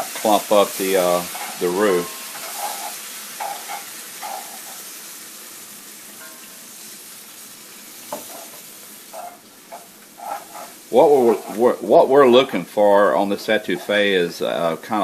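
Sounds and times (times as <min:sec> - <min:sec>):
water sizzling in a hot pan: 0:00.0 - 0:15.0
wooden spoon stirring and scraping: 0:00.1 - 0:04.9, 0:08.2 - 0:11.9, 0:13.5 - 0:14.1.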